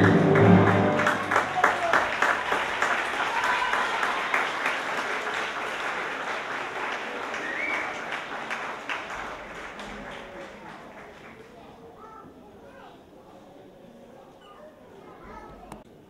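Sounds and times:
audience applauding: 0.0 - 11.7
call from the crowd: 0.0 - 12.4.

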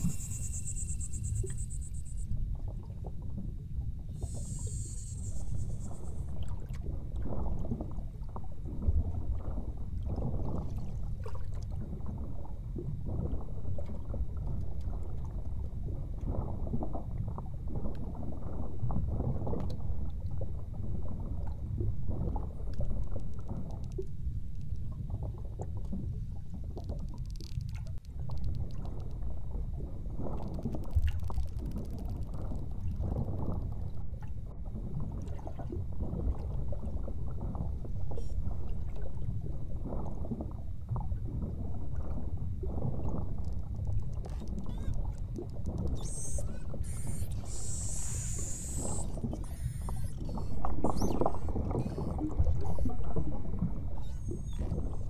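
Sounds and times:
underwater crackling: 0.0 - 2.3, 4.2 - 6.4, 22.2 - 29.6, 30.2 - 33.8, 41.4 - 55.0
underwater rumble of water and boat: 0.0 - 55.0.

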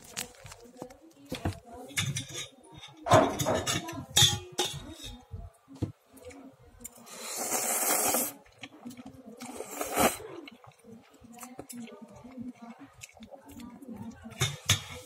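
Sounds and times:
man slurping noodles: 7.1 - 8.4, 9.5 - 10.2.

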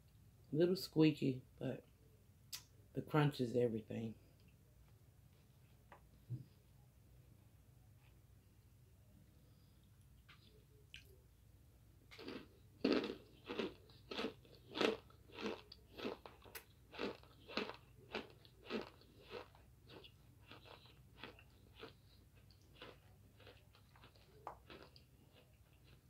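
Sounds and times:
crunching and chewing: 9.8 - 11.2, 12.0 - 26.0.

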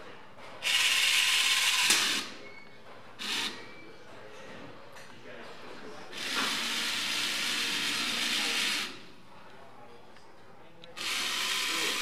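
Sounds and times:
small electric motors hissing: 11.0 - 12.0.

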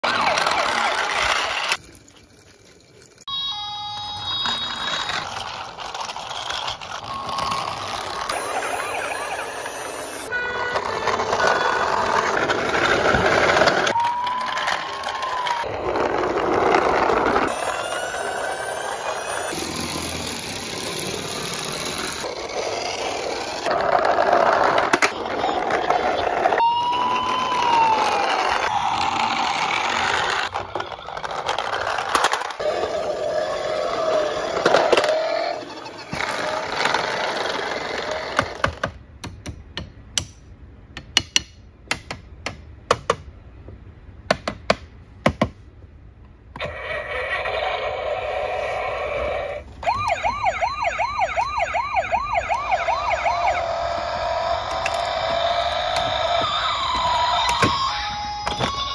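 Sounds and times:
toy wheels rumbling on wood: 0.0 - 2.8, 4.4 - 39.0, 46.6 - 58.9
plastic toys clicking and knocking: 4.4 - 8.7, 10.7 - 26.3, 28.0 - 32.7, 34.4 - 43.3, 53.3 - 58.9.

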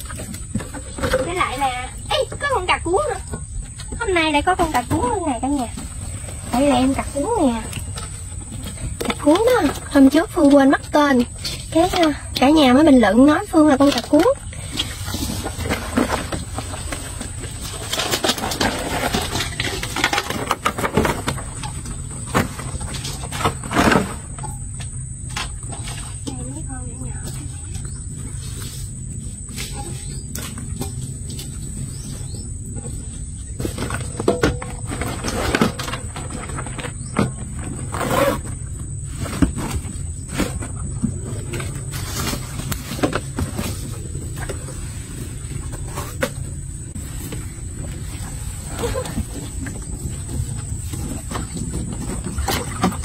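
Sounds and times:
crabs clicking and scraping in metal basin: 0.0 - 53.0.

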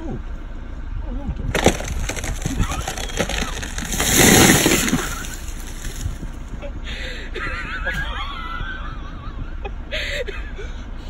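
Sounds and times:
tree cracking and crashing down: 1.5 - 6.4.

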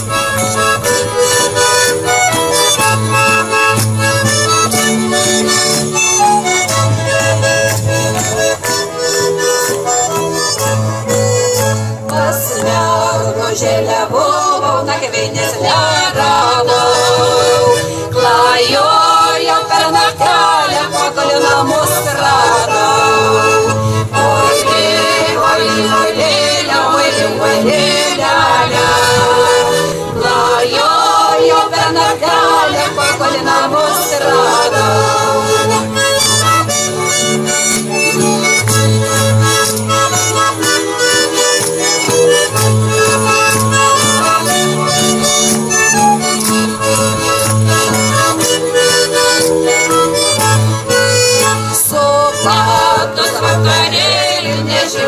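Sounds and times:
accordions playing folk music: 0.0 - 55.0
women singing: 12.1 - 35.9, 51.6 - 55.0
double bass low notes: 20.2 - 51.8.

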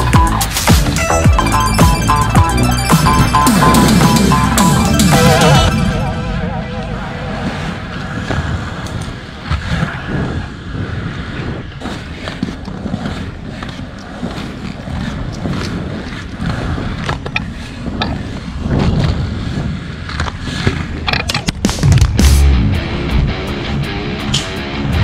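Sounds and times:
skate wheels rumbling on pavement: 7.7 - 23.5.

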